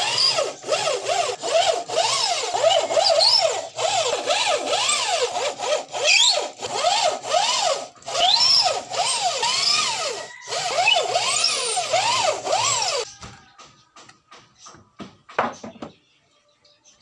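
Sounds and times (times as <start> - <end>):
electric drill motor whine: 0.0 - 13.1.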